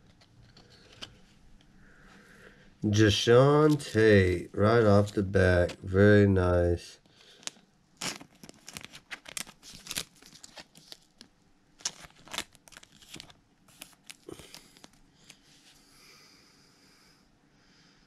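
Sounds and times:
plastic sleeve crinkling: 0:07.2 - 0:15.5.

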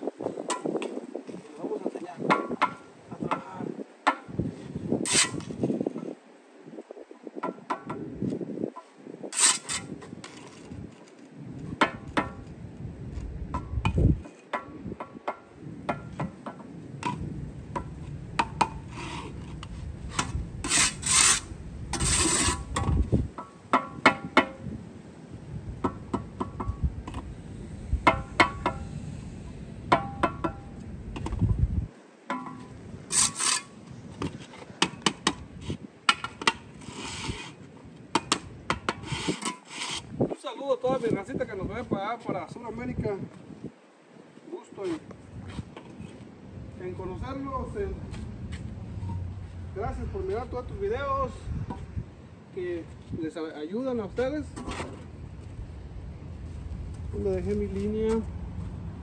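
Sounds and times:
trowel scraping mortar: 0:05.0 - 0:05.6, 0:09.3 - 0:11.1, 0:18.9 - 0:22.8, 0:33.1 - 0:34.6, 0:36.7 - 0:37.6, 0:38.9 - 0:40.2
low rumble: 0:46.6 - 0:52.0.

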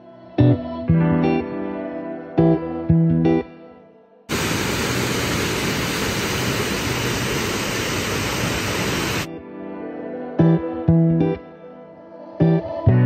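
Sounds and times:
waterfall rushing: 0:04.3 - 0:09.3.

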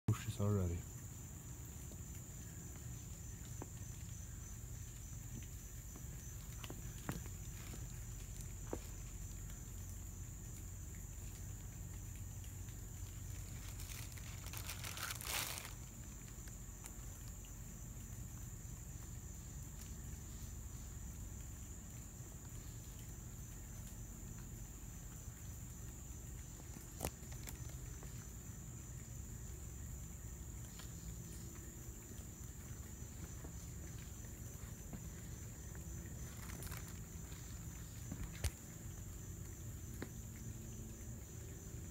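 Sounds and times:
insects droning: 0:00.1 - 0:41.9
short rustle: 0:13.2 - 0:16.4.

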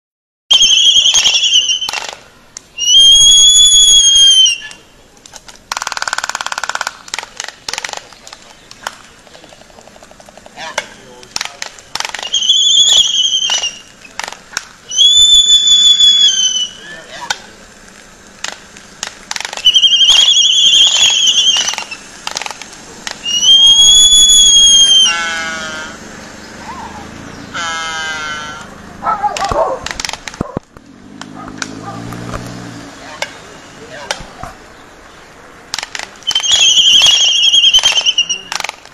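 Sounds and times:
albatross whistled calls: 0:00.5 - 0:02.2, 0:02.8 - 0:04.9, 0:12.0 - 0:14.2, 0:14.9 - 0:17.2, 0:19.4 - 0:22.5, 0:23.2 - 0:26.0, 0:36.2 - 0:38.7
albatross bill clacks: 0:01.1 - 0:02.9, 0:04.6 - 0:15.3, 0:17.2 - 0:23.6, 0:28.6 - 0:32.6, 0:35.7 - 0:38.9
rattling bill-clatter: 0:05.3 - 0:12.3
sharp bill snaps: 0:29.4 - 0:32.6.

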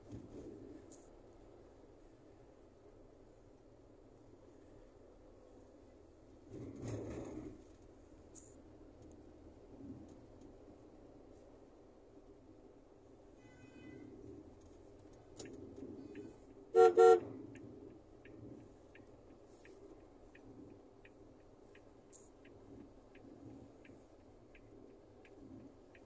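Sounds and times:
faint regular clicks: 0:04.9 - 0:13.3, 0:14.1 - 0:26.0
loud horn blasts: 0:16.7 - 0:17.3.

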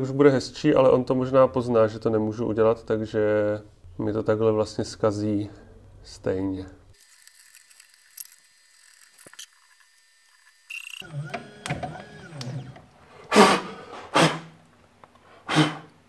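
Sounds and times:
stepper motors whining: 0:07.0 - 0:12.9
loud blasts of breath: 0:13.2 - 0:14.6, 0:15.3 - 0:15.9.

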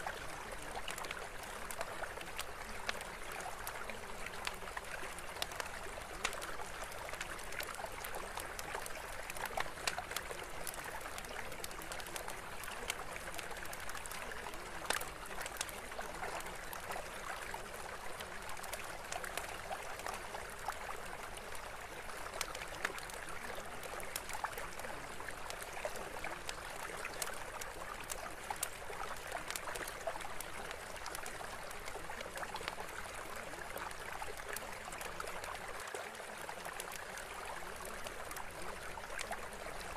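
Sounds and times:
small ticks: 0:25.4 - 0:32.8.

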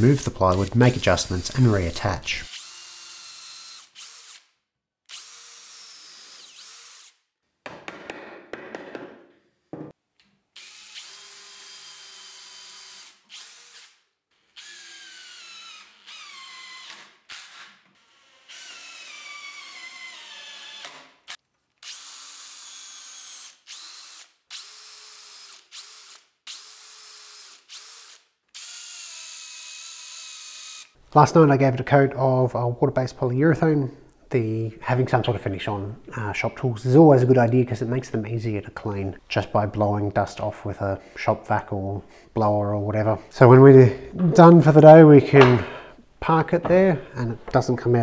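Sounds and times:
cordless drill whining: 0:02.5 - 0:04.5, 0:05.1 - 0:07.2, 0:10.6 - 0:31.0.

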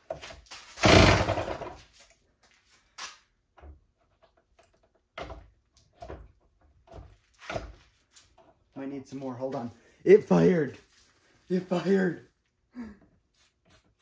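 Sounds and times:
small two-stroke engine bursts: 0:00.8 - 0:01.8.

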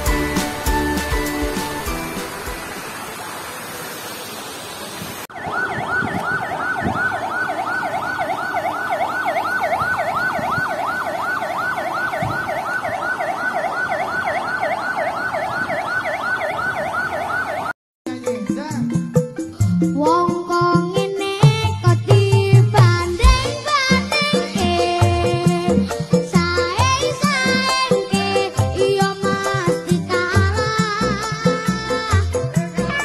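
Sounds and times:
warning siren warbling: 0:05.3 - 0:17.8.

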